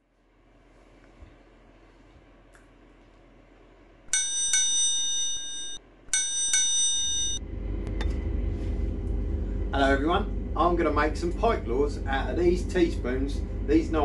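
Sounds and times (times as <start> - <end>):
low room hum: 0.0 - 14.0
bell ringing: 4.1 - 7.4.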